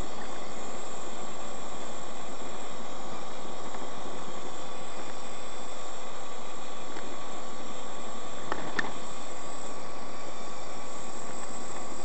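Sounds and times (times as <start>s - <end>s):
faint steady whine: 0.0s - 12.0s.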